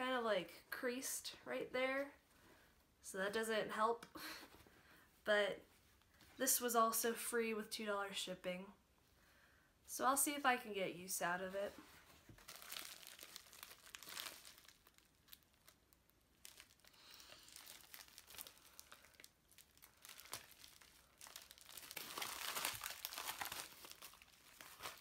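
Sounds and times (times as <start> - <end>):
packet crinkling and tearing: 12.3 - 25.0.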